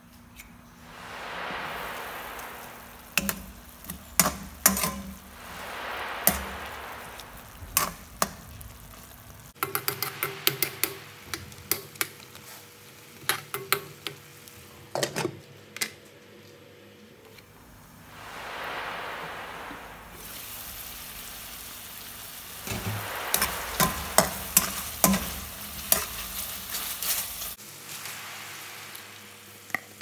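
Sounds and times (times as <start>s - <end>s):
spoon scraping metal pan: 3.2s - 5.2s.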